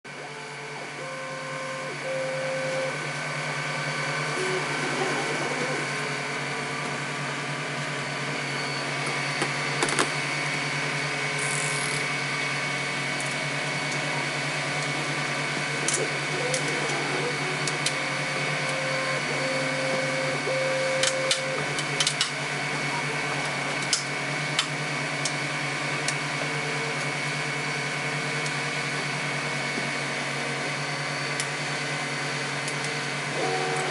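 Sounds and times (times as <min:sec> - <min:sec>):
printer humming and whining: 0:00.1 - 0:33.9
short tones changing pitch: 0:00.3 - 0:06.0, 0:16.3 - 0:21.6.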